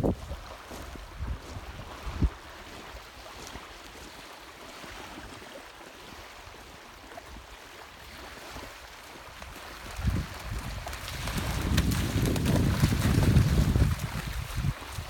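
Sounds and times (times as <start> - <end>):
light wind: 0.0 - 15.0
waves washing onto pebbles: 8.1 - 15.0.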